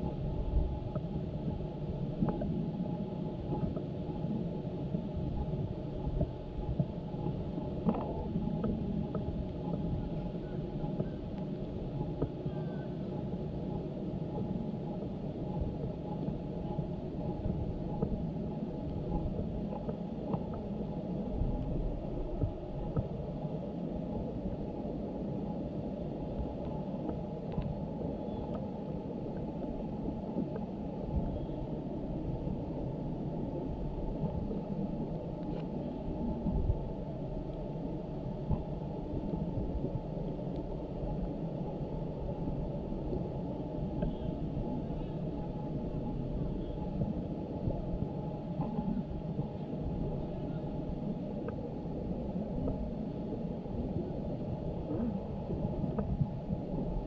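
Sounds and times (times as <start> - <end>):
muffled low rumbling: 0.0 - 57.0
faint clicks: 2.2 - 2.5, 6.1 - 13.3, 14.3 - 20.7, 26.4 - 31.4, 43.1 - 45.6.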